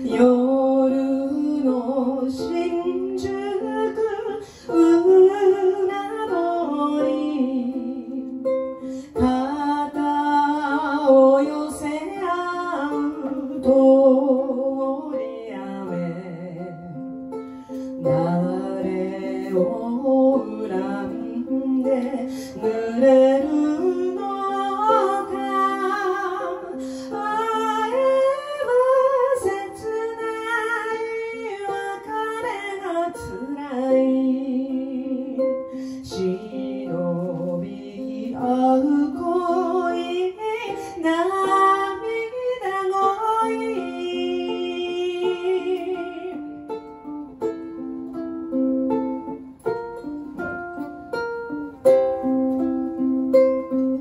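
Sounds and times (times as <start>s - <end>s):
woman singing: 0.0s - 49.8s
ukulele strumming: 0.0s - 54.0s.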